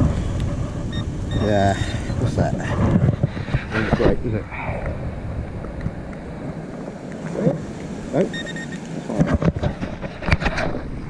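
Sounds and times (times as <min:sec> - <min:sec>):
wind buffeting microphone: 0:00.0 - 0:11.0
high electronic beeps: 0:00.9 - 0:02.2, 0:08.3 - 0:08.8
knocks and scrapes: 0:02.4 - 0:04.4, 0:09.1 - 0:10.9.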